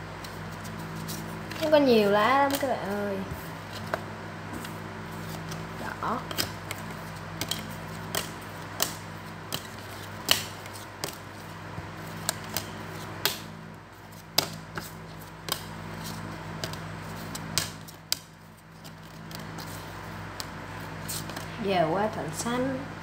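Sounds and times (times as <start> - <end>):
playing cards slapping on table: 2.4 - 4.0, 4.6 - 11.2, 12.0 - 13.5, 14.2 - 19.8, 20.4 - 21.5.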